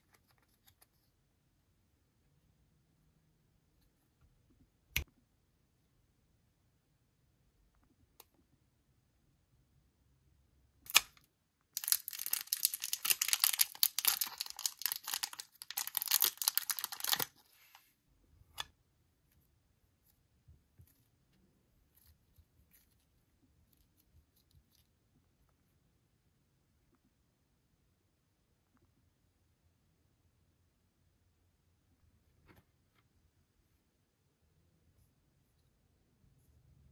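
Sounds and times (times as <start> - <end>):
plastic bag crinkling: 11.8 - 17.8.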